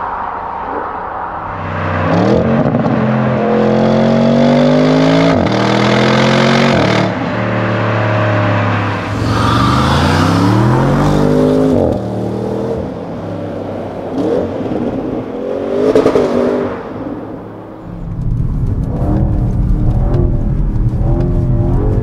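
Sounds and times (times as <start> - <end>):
car engine revving: 1.4 - 13.0, 17.8 - 22.0.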